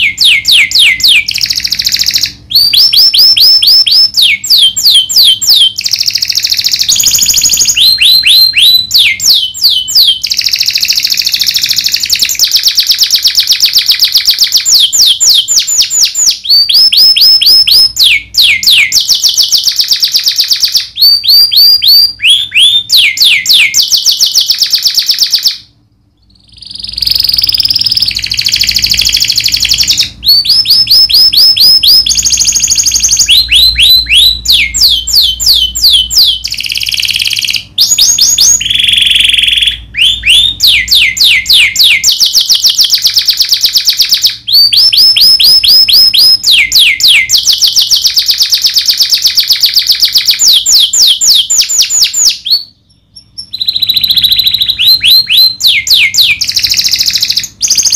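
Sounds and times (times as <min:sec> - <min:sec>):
canary singing: 0:00.0 - 0:57.9.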